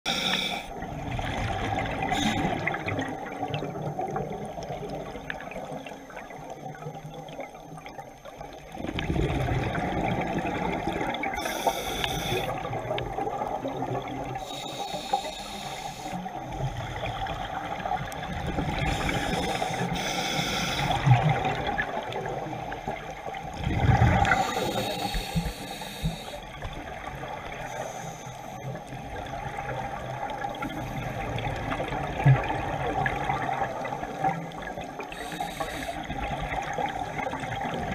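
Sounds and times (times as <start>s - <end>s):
underwater watery rush: 0.0s - 37.9s
exhaust bubbles bursting: 8.8s - 11.3s, 23.6s - 24.4s.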